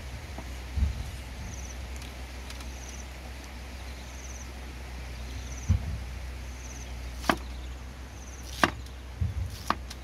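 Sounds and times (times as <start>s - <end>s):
high insect chirp: 1.0s - 9.6s
dull thump: 5.6s - 6.0s, 7.2s - 7.5s, 8.6s - 9.9s.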